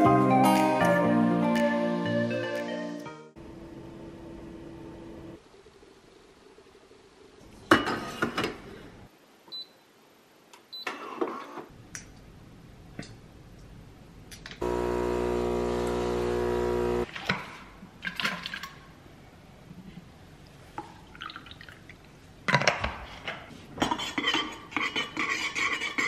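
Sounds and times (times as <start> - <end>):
kitchen appliance buzzing: 14.6 - 17.1.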